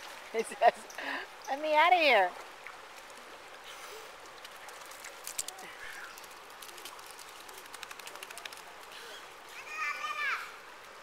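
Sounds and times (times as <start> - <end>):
small splashes: 2.3 - 9.6.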